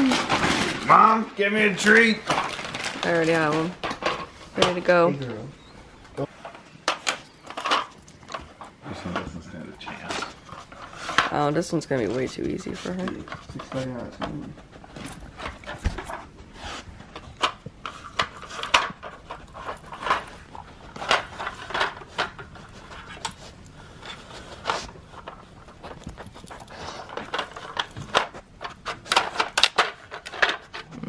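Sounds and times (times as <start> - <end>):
plastic pieces clacking: 1.8 - 4.8, 25.1 - 31.0.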